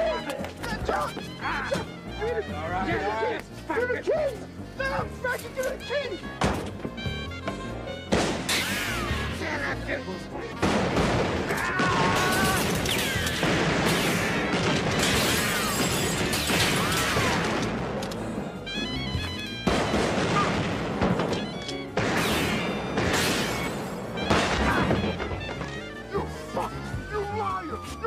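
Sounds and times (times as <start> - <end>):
action film music: 0.0 - 28.0
loud bangs and crashes: 10.6 - 18.0.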